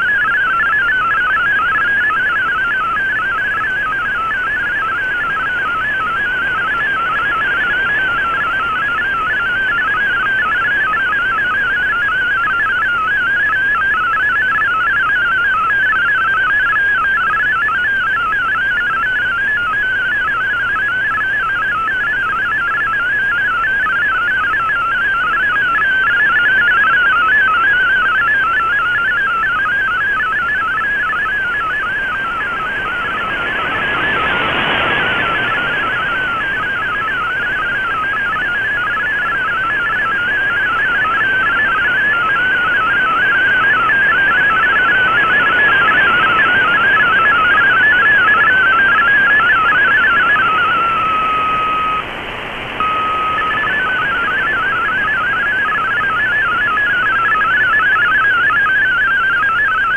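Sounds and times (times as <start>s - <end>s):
warbling digital data tones: 0.0s - 52.1s, 52.8s - 59.9s
steady single tone: 25.4s - 59.0s.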